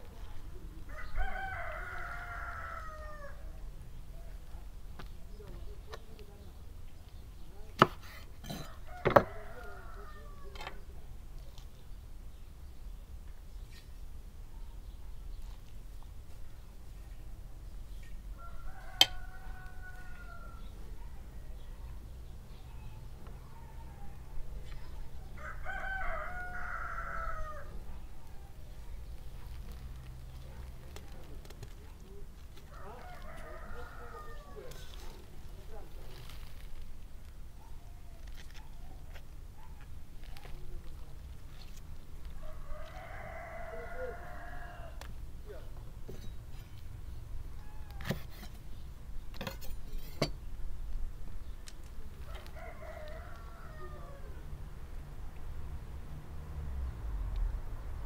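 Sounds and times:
rooster crowing: 0.9 - 3.5, 8.5 - 10.6, 18.4 - 20.7, 25.4 - 27.8, 32.7 - 35.0, 42.4 - 45.1, 52.2 - 54.5.

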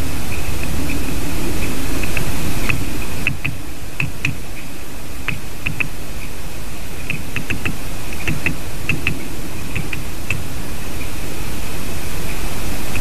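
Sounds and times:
steady background hiss: 0.0 - 13.0
woodpecker pecking at wood: 2.1 - 4.4, 5.3 - 6.0, 7.1 - 10.5.

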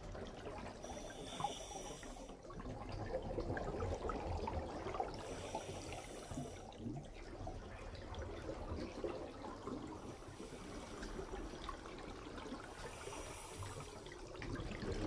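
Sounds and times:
regulator hissing inhale: 0.8 - 2.4, 5.2 - 6.7, 12.8 - 14.2
burbling exhaled bubbles: 14.1 - 15.0.

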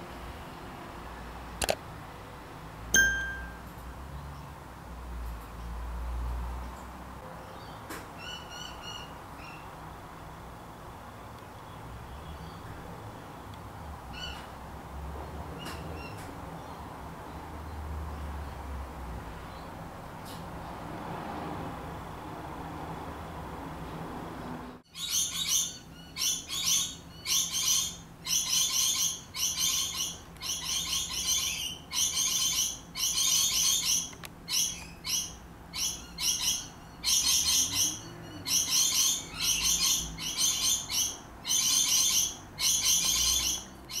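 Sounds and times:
bird chirping in trills: 3.0 - 3.7, 24.9 - 44.0.

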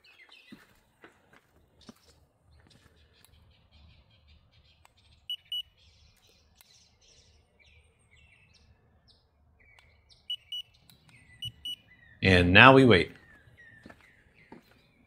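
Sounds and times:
birds chirping: 0.0 - 15.0
thermometer beeps: 5.3 - 5.7, 10.3 - 10.7, 11.4 - 11.8.

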